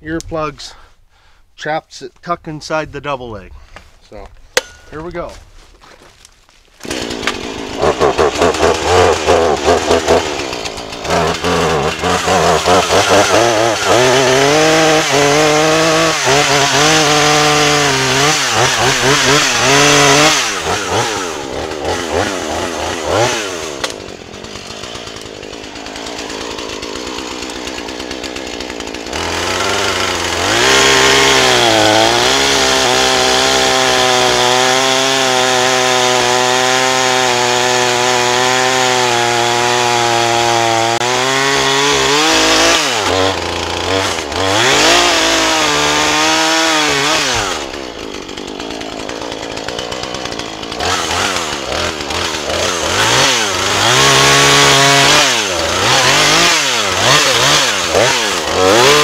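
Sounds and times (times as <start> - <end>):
chainsaw revving: 6.8 - 59.0.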